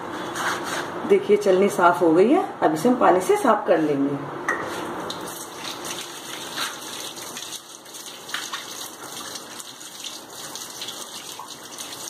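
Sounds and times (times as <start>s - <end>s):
tap water splashing into sink: 5.1s - 12.0s.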